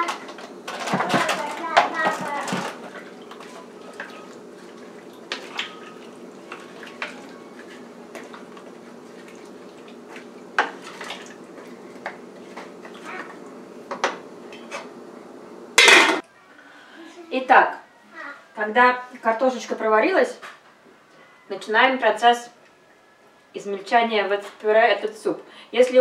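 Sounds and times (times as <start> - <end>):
wooden spoon stirring in pot: 0.9 - 13.4
metal lid clattering on pot: 15.8 - 16.2.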